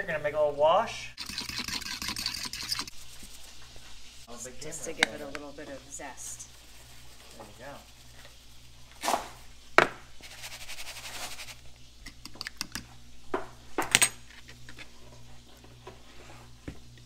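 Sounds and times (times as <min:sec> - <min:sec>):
knocks on kitchen counter: 0:09.1 - 0:10.0.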